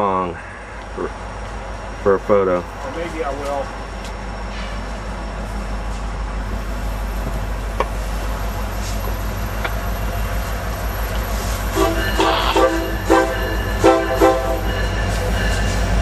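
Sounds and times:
diesel locomotive engine rumbling: 0.0 - 16.0
locomotive air horn blasts: 11.7 - 14.8.

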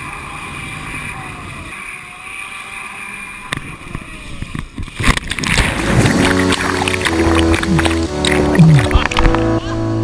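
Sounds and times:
wind and spray rushing: 3.0 - 8.6
loud churning splashing: 4.9 - 9.2.

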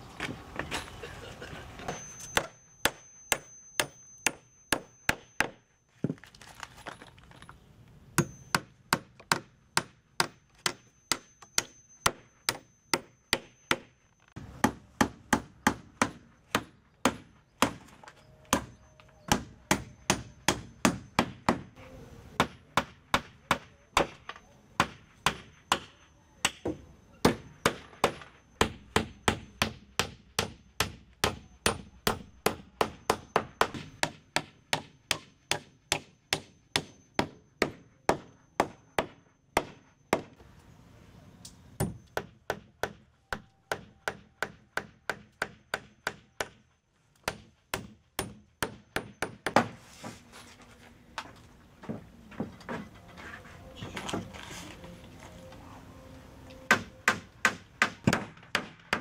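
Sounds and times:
hammer striking wooden planks: 8.2 - 21.8, 22.4 - 40.4, 41.8 - 46.6, 47.2 - 49.8, 56.7 - 59.0.

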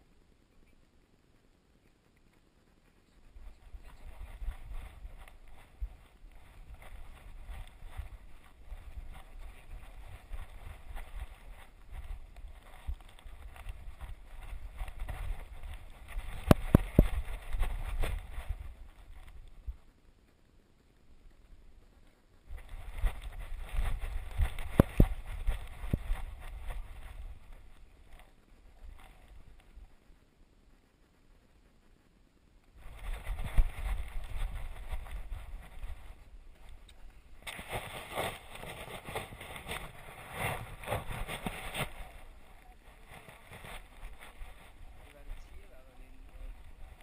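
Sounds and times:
rustling and bumping on camera: 3.4 - 19.8, 22.5 - 29.4, 32.8 - 45.6.

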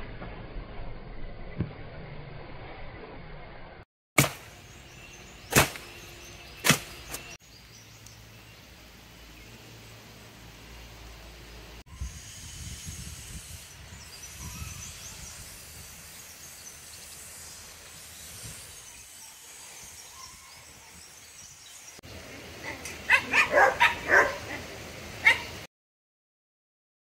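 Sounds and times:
dog barking: 23.1 - 24.6, 25.2 - 25.5.

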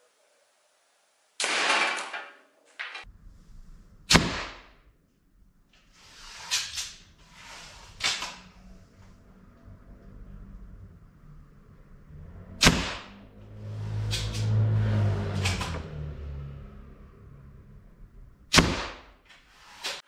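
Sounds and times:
slingshot rifle sharp cracks: 4.1 - 4.8, 12.6 - 13.2, 18.5 - 19.2.

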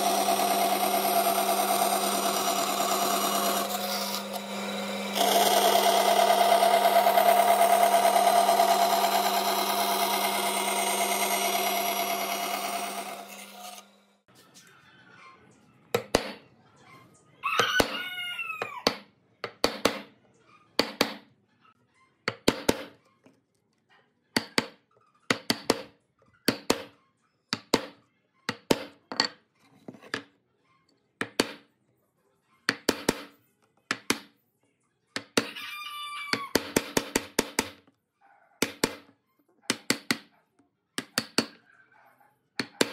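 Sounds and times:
bandsaw cutting through board: 0.0 - 14.1.

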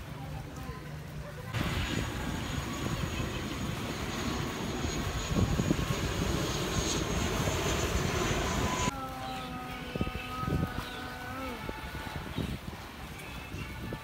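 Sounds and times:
jet engines roaring overhead: 1.5 - 8.9.

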